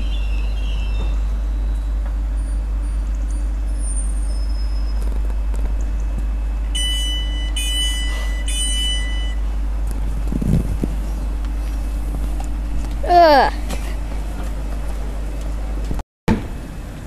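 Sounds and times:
electric train rumbling: 0:00.0 - 0:17.0
train door warning beeps: 0:06.7 - 0:09.5.

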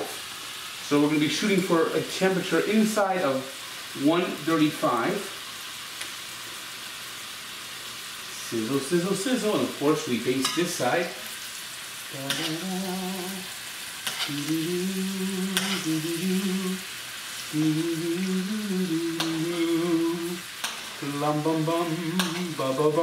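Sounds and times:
steak sizzling in a pan: 0:00.0 - 0:23.0
man humming: 0:12.1 - 0:13.6, 0:14.2 - 0:16.9, 0:17.5 - 0:23.0.

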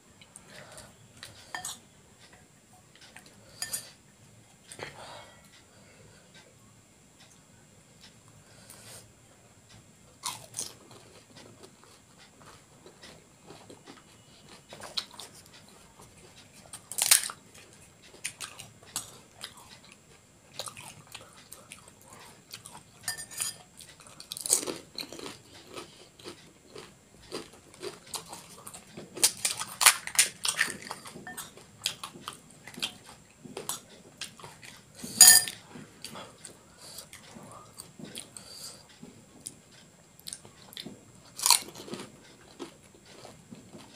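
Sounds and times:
crunchy food chewing: 0:10.2 - 0:43.9.

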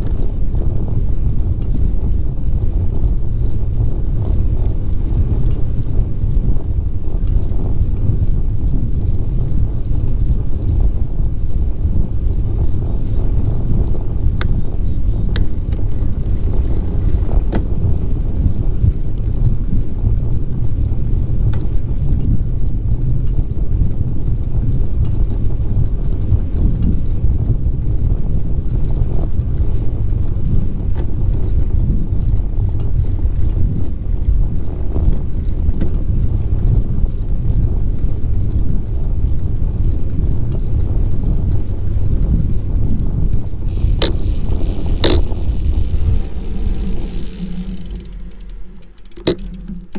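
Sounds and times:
wind buffeting microphone: 0:00.0 - 0:49.9
faint ticks: 0:14.3 - 0:14.6, 0:43.7 - 0:49.9.

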